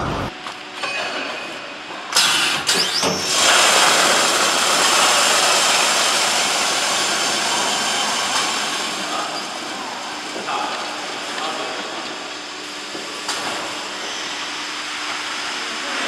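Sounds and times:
bag filling machine rushing hiss: 2.1 - 11.8.

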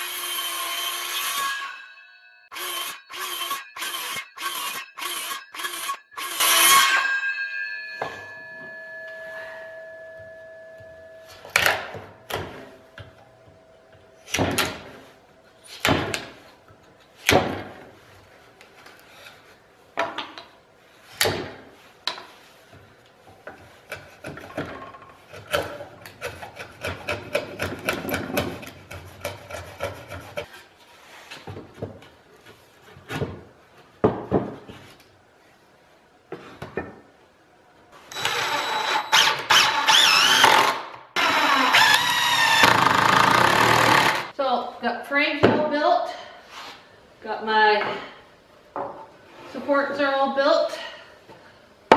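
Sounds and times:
chisel scraping wood: 25.2 - 31.3
impact driver driving a screw: 38.1 - 44.3.

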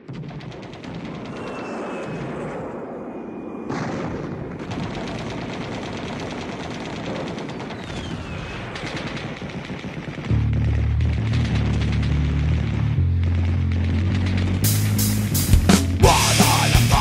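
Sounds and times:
machine-gun fire: 0.0 - 3.0, 3.7 - 17.0
high whistles gliding down: 1.2 - 3.7
dense din: 10.2 - 17.0.

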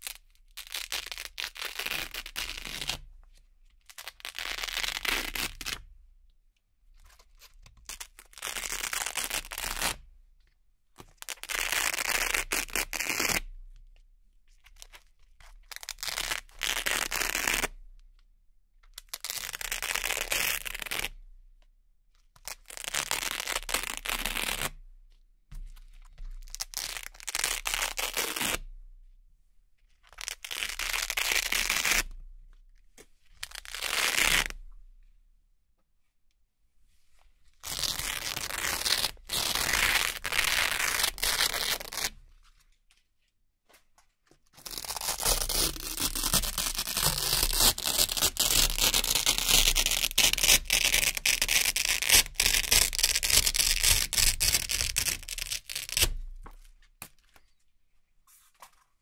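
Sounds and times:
velcro ripping: 0.0 - 3.0, 3.9 - 5.8, 7.8 - 10.0, 11.2 - 13.4, 15.7 - 17.7, 19.0 - 21.2, 22.4 - 24.8, 26.5 - 28.6, 30.1 - 32.1, 33.4 - 34.6, 37.6 - 42.2, 44.6 - 56.7.

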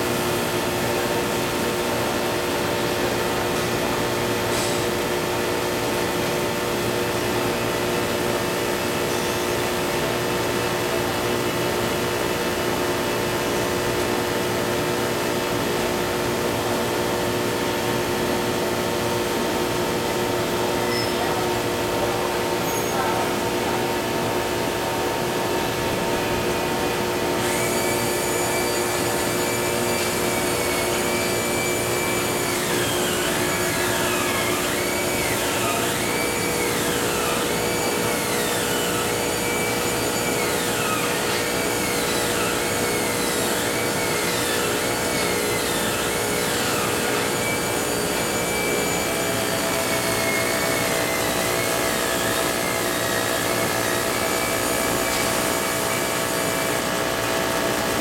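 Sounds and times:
machine motor hum: 18.1 - 58.0.

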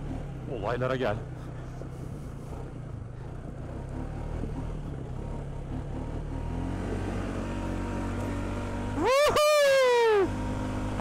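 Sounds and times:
atv engine running: 0.0 - 11.0.

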